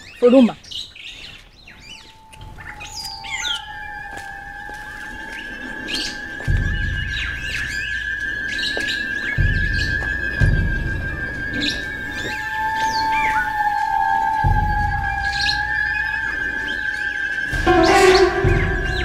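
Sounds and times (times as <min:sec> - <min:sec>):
birds chirping: 0:00.0 - 0:19.0
background music: 0:05.6 - 0:19.0.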